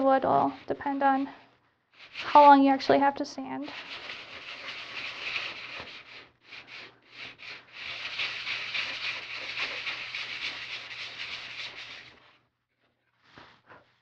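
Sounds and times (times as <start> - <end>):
sandpaper rubbing on plywood: 0.0 - 1.4, 2.0 - 2.6, 3.6 - 12.4.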